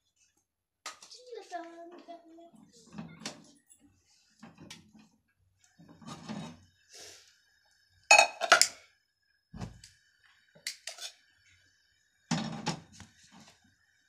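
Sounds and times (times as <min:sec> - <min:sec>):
pan clinking on stove grate: 0:08.1 - 0:08.8.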